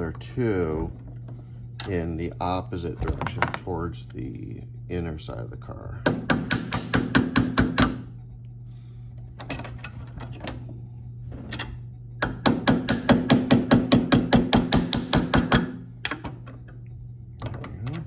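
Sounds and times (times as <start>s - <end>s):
hammer tapping on metal: 6.0s - 8.0s, 12.2s - 15.8s.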